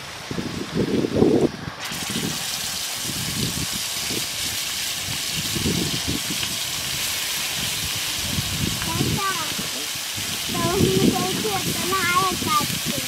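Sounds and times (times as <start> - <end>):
prawns sizzling in hot oil: 0.0 - 13.0.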